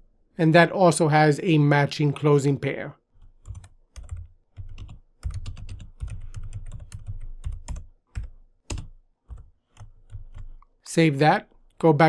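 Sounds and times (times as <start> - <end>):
typing on keyboard: 3.3 - 10.6.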